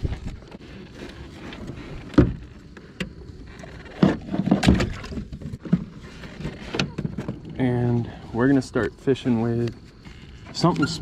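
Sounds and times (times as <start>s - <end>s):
gear clunking against kayak hull: 0.2s - 7.6s.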